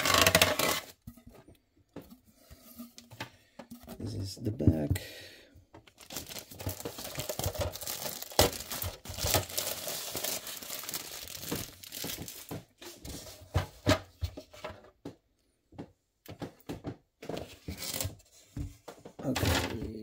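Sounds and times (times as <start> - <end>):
plastic film crinkling: 0.0 - 0.9, 5.8 - 12.8.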